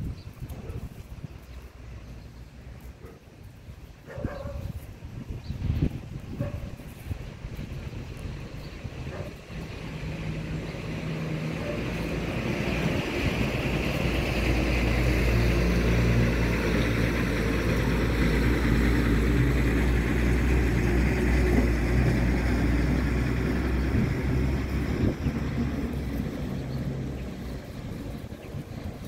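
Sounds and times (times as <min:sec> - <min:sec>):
engine running: 0:05.9 - 0:29.0.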